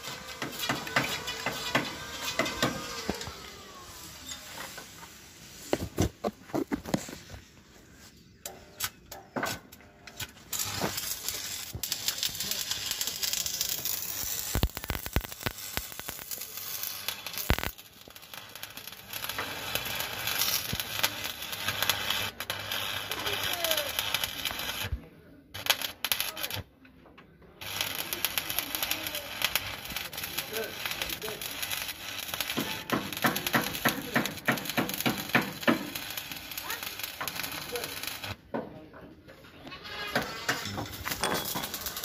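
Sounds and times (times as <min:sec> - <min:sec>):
welding arc crackling: 0:00.0 - 0:04.4, 0:10.2 - 0:26.7, 0:27.6 - 0:38.4, 0:40.2 - 0:42.0
metal knocks and clanks: 0:40.0 - 0:42.0.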